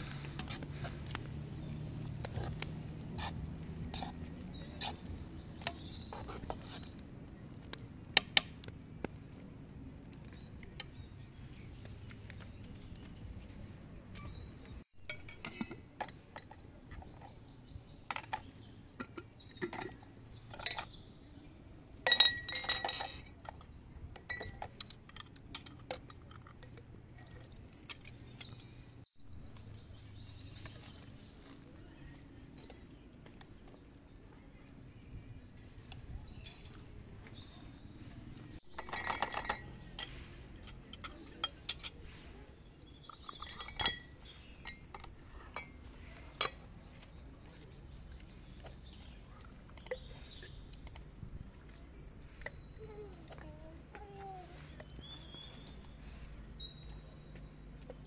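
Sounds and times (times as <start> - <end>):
metal utensils clinking on steel pot: 15.0 - 17.4, 18.1 - 21.0, 22.0 - 28.6, 38.7 - 46.7
glass jars clinking: 22.1 - 24.9, 38.8 - 41.9, 43.1 - 45.8.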